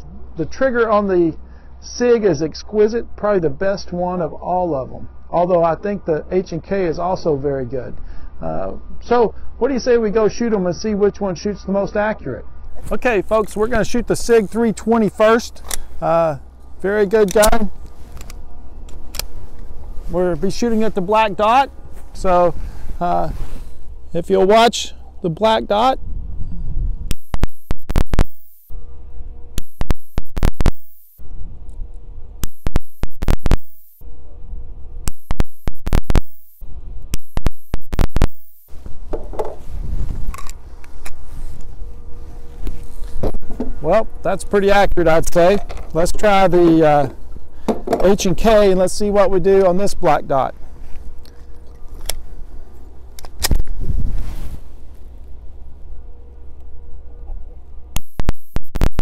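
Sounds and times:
wind buffeting the microphone: 25.7 - 27.2, 38.8 - 42.1, 53.5 - 54.9.

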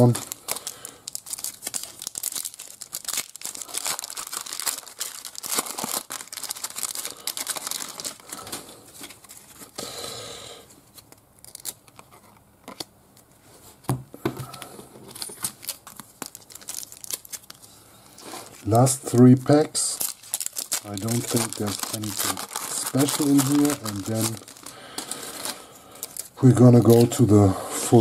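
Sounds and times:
cards rustling: 0.0 - 9.8, 10.9 - 12.9, 14.3 - 27.3
foil wrapper crinkling and tearing: 0.0 - 9.8, 10.9 - 12.9, 15.1 - 27.3.

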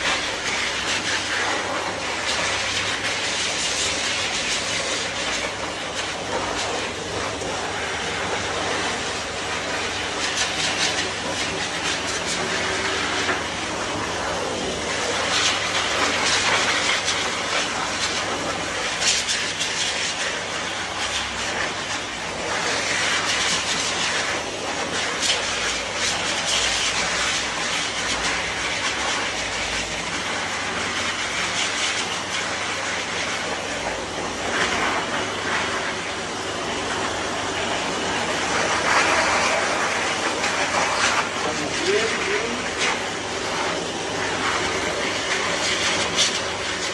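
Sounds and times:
blower motor hum: 0.0 - 46.9
pet dryer air rushing: 0.0 - 46.9.

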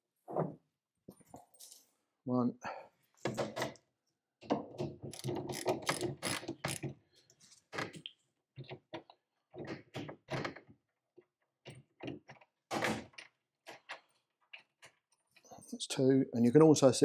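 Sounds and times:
hand tool clicking and rattling: 5.0 - 6.9.

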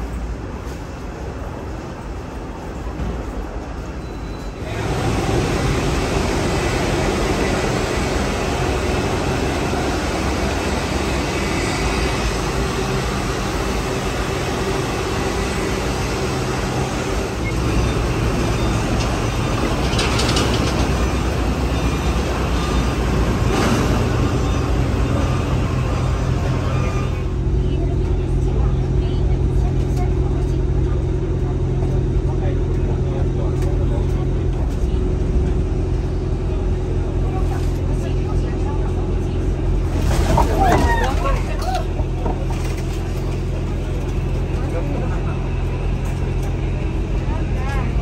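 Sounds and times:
bus engine rumbling: 0.0 - 48.0.

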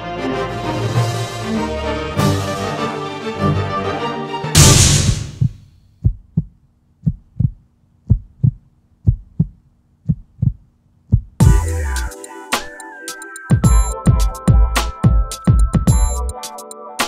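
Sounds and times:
crash: 4.6 - 5.6
heartbeat thumps: 4.6 - 11.7, 13.6 - 16.2.

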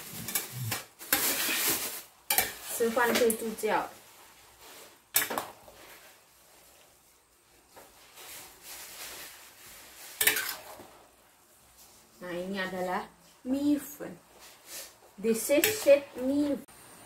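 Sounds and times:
metal spatula scraping frying pan: 0.0 - 3.4, 10.0 - 10.9
metal clanks on pan: 10.2 - 10.6.

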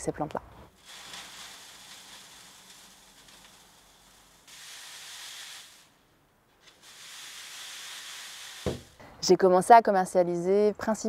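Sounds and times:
dried herbs rustling through sieves: 0.7 - 6.0, 6.6 - 9.0.

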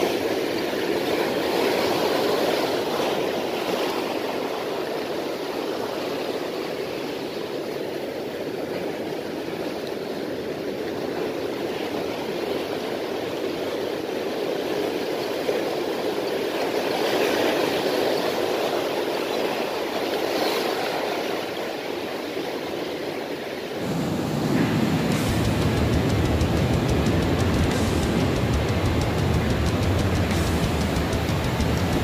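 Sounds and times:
surf breaking against rocks: 23.7 - 32.0.

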